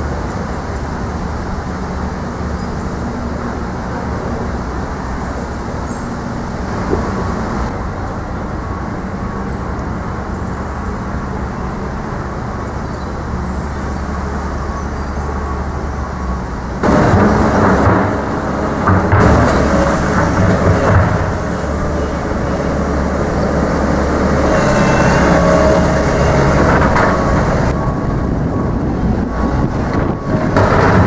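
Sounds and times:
low outdoor rumble: 0:00.0 - 0:31.0.

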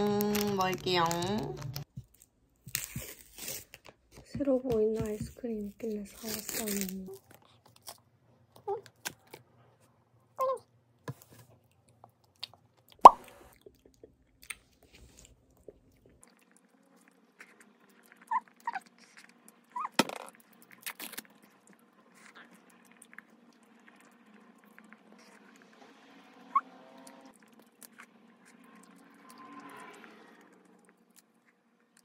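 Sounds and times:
lip smacks and mouth clicks: 0:11.8 - 0:16.7.

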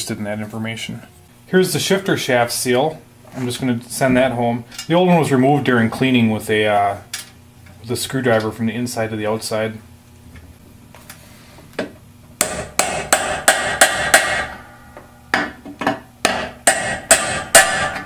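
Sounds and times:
hammer tapping metal: 0:11.8 - 0:18.0.

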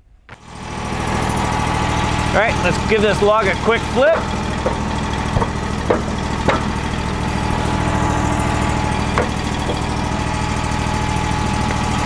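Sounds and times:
sawmill engine idling: 0:00.4 - 0:12.0
log knocking on steel bed: 0:04.1 - 0:07.5, 0:08.9 - 0:10.1.

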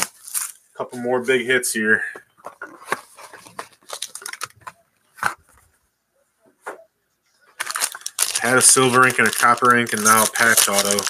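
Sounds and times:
cardboard and foil rustling: 0:02.7 - 0:04.6, 0:07.6 - 0:11.0.

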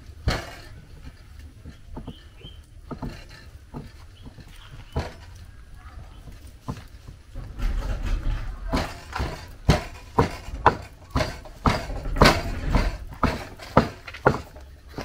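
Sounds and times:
soft shuffling: 0:03.1 - 0:13.7
rhythmic chopping knocks: 0:08.7 - 0:15.0.

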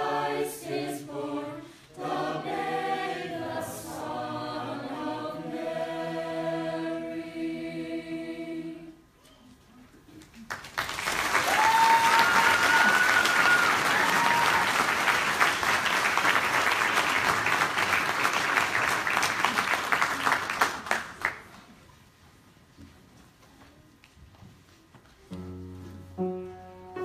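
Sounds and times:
audience applauding: 0:10.2 - 0:21.7
high held cheers: 0:11.2 - 0:15.2.

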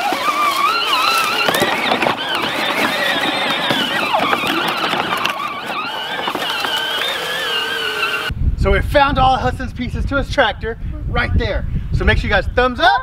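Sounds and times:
electric motor whining: 0:00.0 - 0:08.3
tyres crackling on dry leaves: 0:00.0 - 0:08.3.

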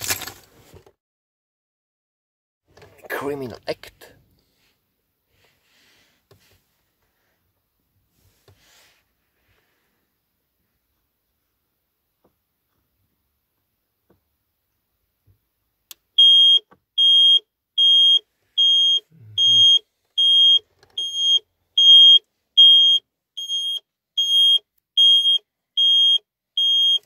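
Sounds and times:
car alarm beeping: 0:16.2 - 0:27.0.

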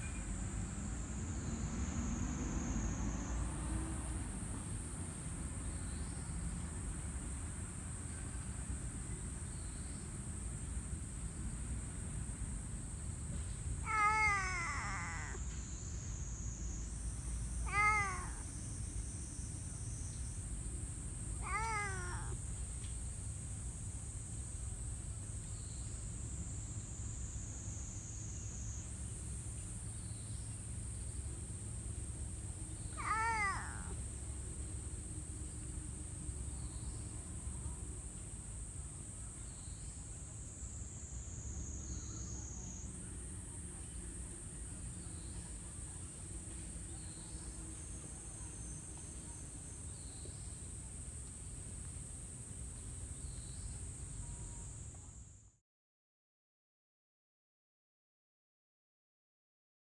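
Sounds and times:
cat meowing: 0:13.8 - 0:15.5, 0:17.6 - 0:18.5, 0:21.4 - 0:22.4, 0:33.0 - 0:34.0.

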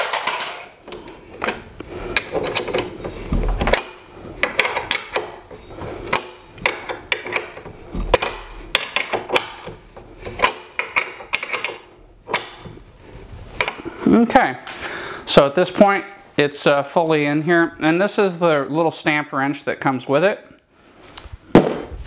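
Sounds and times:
metal bracket clicking and knocking: 0:00.0 - 0:12.8.

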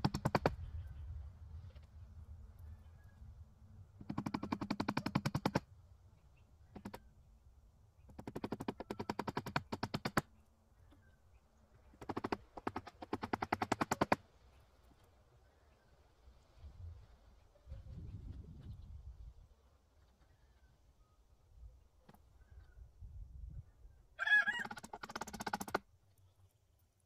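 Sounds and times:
rapid mechanical clicking: 0:04.0 - 0:05.6, 0:08.1 - 0:10.2, 0:12.0 - 0:14.2, 0:24.8 - 0:25.8.

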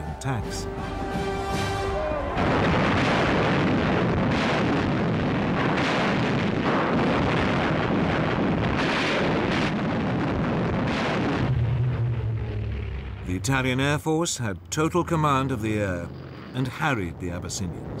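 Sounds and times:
artillery fire: 0:02.4 - 0:13.2
shell explosions: 0:02.4 - 0:13.4.

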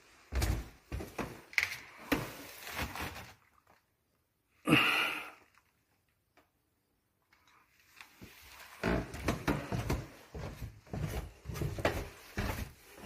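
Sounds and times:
footsteps going down stairs: 0:00.0 - 0:02.5, 0:08.2 - 0:13.0.

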